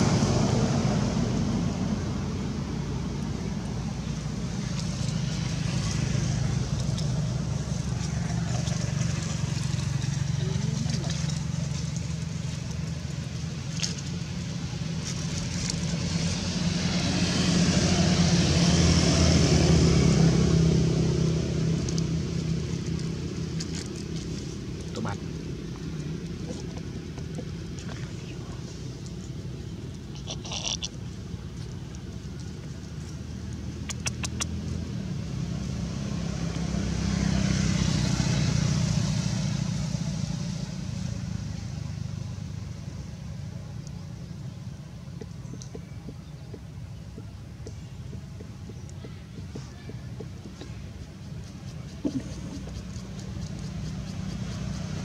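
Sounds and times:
vehicle passing by: 0.0s - 55.0s
sharp clicks: 33.8s - 34.6s.

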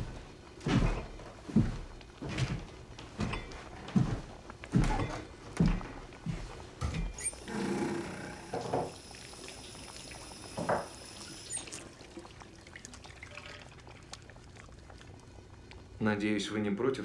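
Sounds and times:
tap water running into sink: 7.4s - 15.0s.

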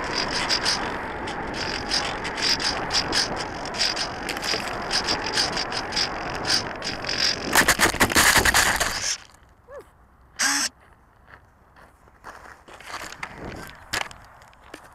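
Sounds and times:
glider sliding through grass: 0.0s - 9.3s
rough scrape across gravel: 0.0s - 9.4s, 12.2s - 14.9s
short pitched call: 9.7s - 10.7s.

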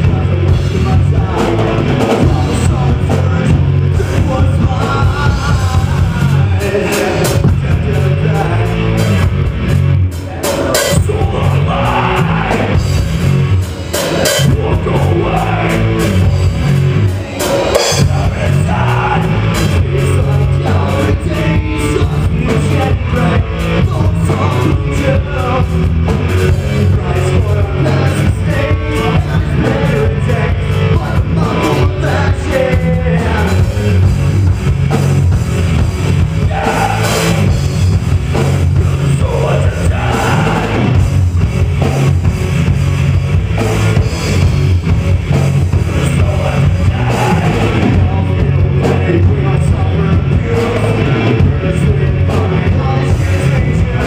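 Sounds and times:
pounding drum kit: 0.0s - 54.0s
rock band playing live: 0.0s - 54.0s.

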